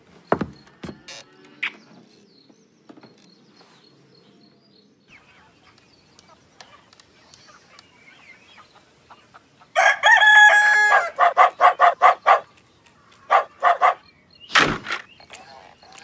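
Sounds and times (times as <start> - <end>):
chicken clucking: 5.2 - 9.9
rooster crowing: 9.8 - 12.0.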